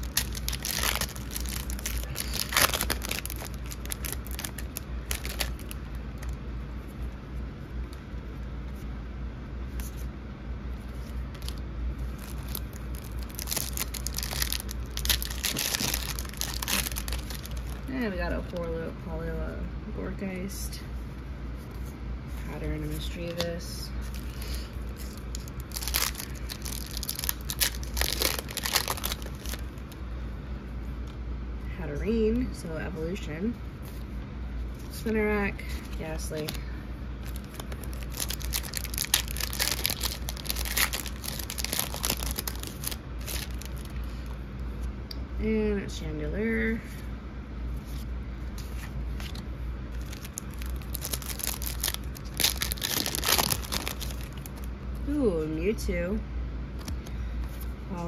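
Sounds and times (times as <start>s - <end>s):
foil wrapper tearing: 0.0s - 6.3s, 11.3s - 18.0s, 24.2s - 29.8s, 37.2s - 43.9s, 49.3s - 54.7s
foil wrapper crinkling: 0.0s - 6.4s, 10.9s - 18.5s, 24.0s - 30.0s, 37.2s - 44.3s, 49.2s - 54.7s.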